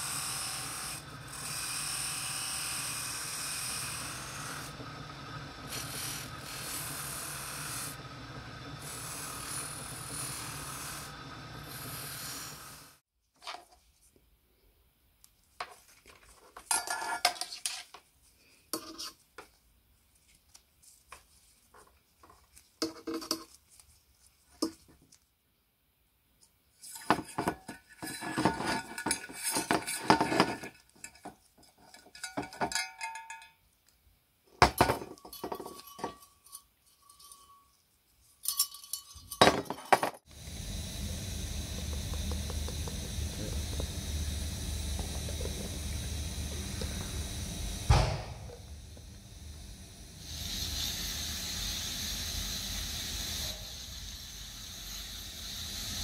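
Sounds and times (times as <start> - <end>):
buffing wheel spinning: 0.0 - 13.0, 40.3 - 56.0
metal lamp parts clinking: 16.6 - 17.9, 26.9 - 33.6, 34.8 - 37.8, 38.4 - 40.2.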